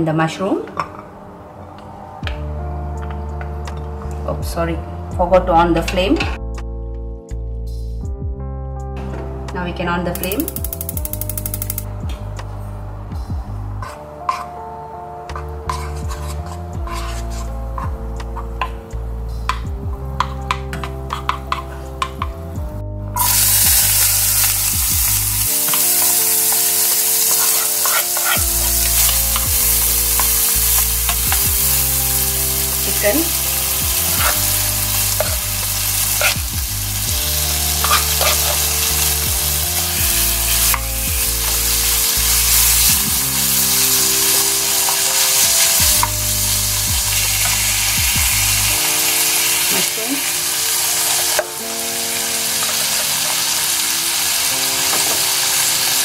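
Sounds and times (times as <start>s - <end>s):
wooden spoon stirring and scraping: 13.8s - 14.6s, 15.6s - 17.8s, 25.7s - 29.5s
food sizzling in butter: 15.7s - 17.6s, 23.2s - 56.0s.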